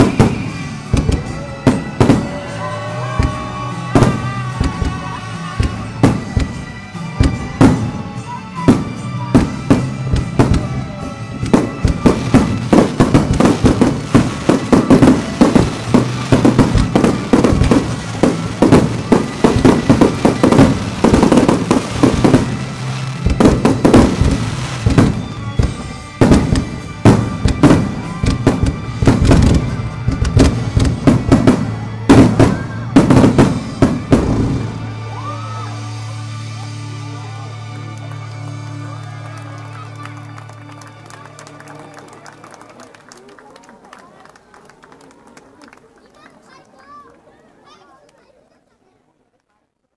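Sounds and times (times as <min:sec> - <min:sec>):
music with sustained tones: 0:00.0 - 0:43.1
firework shells bursting: 0:11.6 - 0:31.4.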